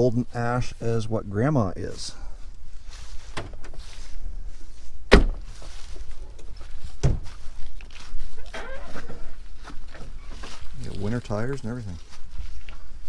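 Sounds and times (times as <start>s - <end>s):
car doors shutting: 5.1s - 5.6s.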